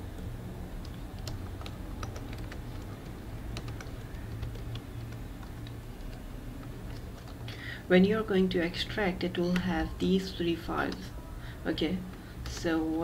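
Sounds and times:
steady low hum: 0.0 - 13.0
keyboard and mouse clicks: 0.1 - 7.5, 10.8 - 11.1, 12.1 - 12.9.

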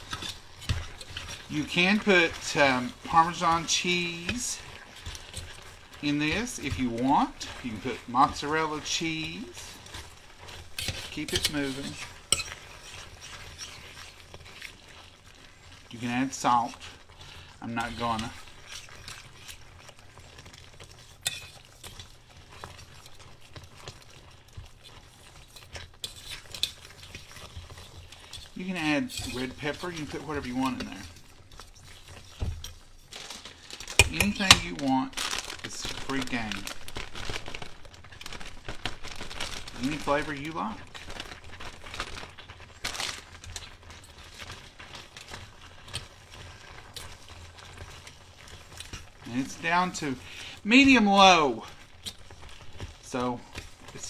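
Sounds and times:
metal utensil scraping saucepan: 0.0 - 14.8, 20.9 - 22.1, 25.1 - 33.1
plastic bag crinkling: 0.0 - 54.0
utensil stirring in a pan: 0.0 - 54.0.

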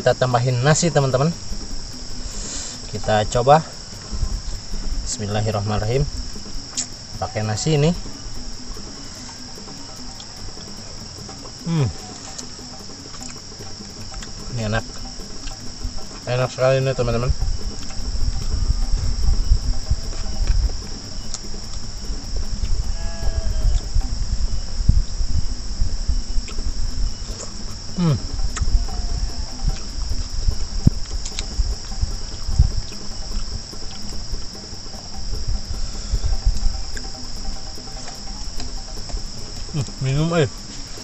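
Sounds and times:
high-pitched insect chorus: 0.0 - 41.0
chewing mouth noises: 11.4 - 14.4, 17.7 - 18.5.

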